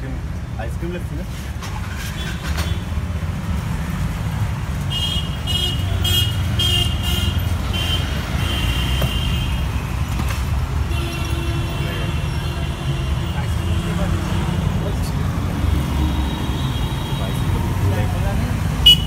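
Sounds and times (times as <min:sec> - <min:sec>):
road traffic rumble: 0:00.0 - 0:19.0
vehicle horn honking: 0:10.9 - 0:14.6.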